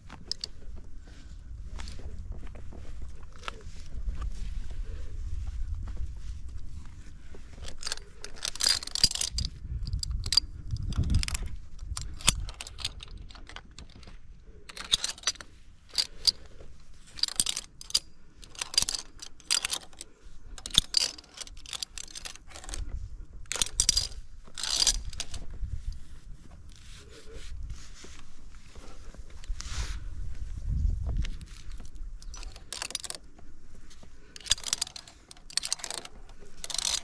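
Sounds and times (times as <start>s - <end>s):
carabiners jingling and clicking: 0.0s - 2.1s, 3.1s - 3.9s, 7.5s - 27.4s, 31.2s - 37.0s.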